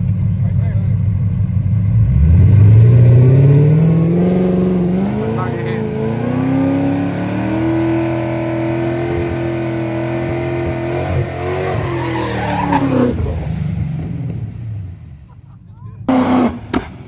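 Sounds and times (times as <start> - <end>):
car engine revving high: 1.8 - 14.9, 16.1 - 17.0
tires squealing: 2.1 - 14.3.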